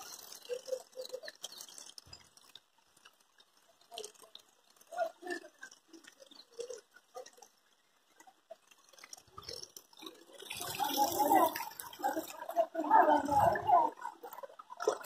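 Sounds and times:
water lapping against wall: 8.1s - 15.0s.

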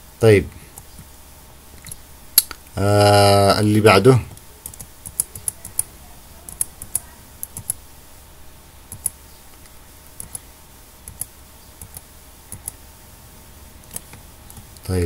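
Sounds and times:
faint steady hum: 0.0s - 15.0s
computer keyboard keys clicking: 4.3s - 5.9s, 6.5s - 7.8s, 8.9s - 9.2s, 11.1s - 12.8s.

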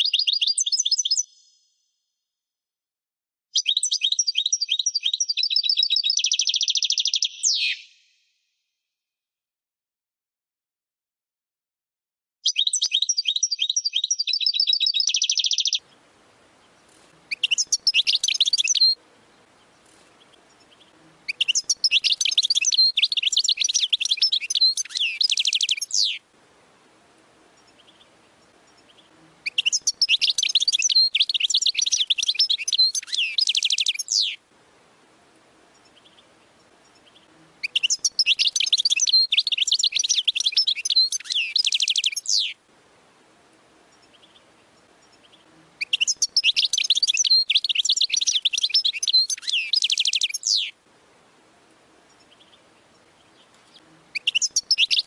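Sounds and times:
goldfinch trilling and twittering: 3.6s - 7.9s, 12.5s - 15.9s, 17.3s - 19.0s, 19.8s - 26.2s, 28.7s - 34.4s, 36.9s - 42.6s, 45.1s - 50.7s, 53.4s - 55.0s.

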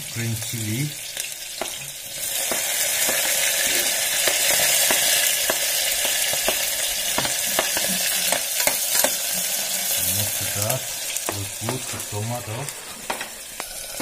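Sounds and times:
chilies sizzling in hot oil: 0.0s - 14.0s
utensils knocking on board and pot: 1.6s - 9.2s, 11.2s - 12.1s.

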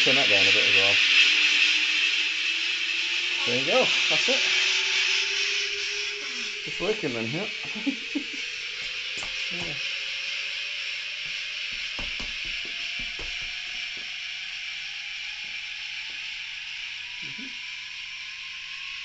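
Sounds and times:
mechanical hiss: 0.0s - 19.0s
thin rising tone: 0.0s - 19.0s
soft knocks: 11.7s - 14.1s.

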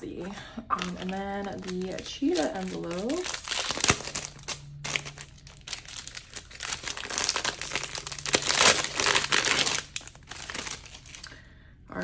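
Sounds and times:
plastic packaging crinkling: 0.7s - 11.4s.

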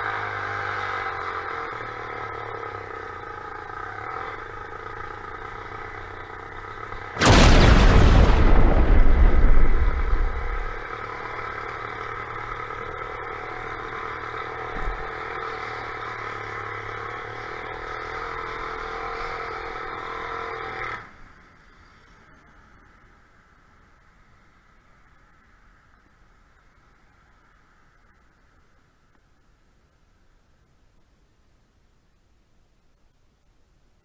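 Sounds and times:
small engine droning: 0.0s - 7.5s, 10.7s - 28.9s
thunderclap rumbling: 7.2s - 11.0s.

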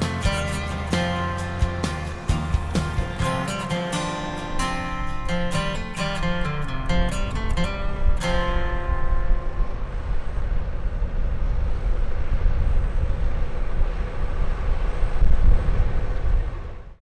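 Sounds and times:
low rumble with faint hum: 0.0s - 17.0s.

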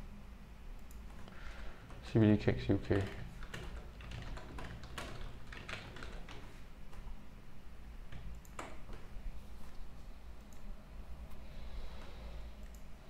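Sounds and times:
keyboard and mouse clicks: 2.9s - 7.1s, 8.1s - 9.1s, 12.6s - 12.9s.

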